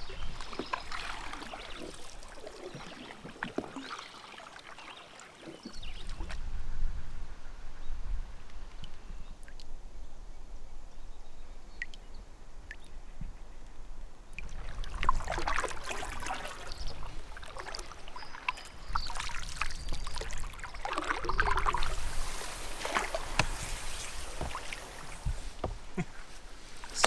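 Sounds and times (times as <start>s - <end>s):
paddle splashing through water: 0.0s - 6.4s, 14.4s - 27.0s.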